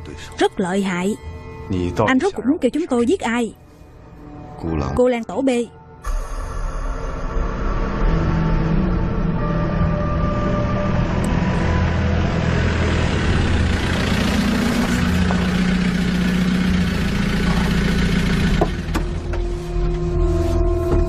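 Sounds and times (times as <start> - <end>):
off-road vehicle engine: 7.7 - 21.0.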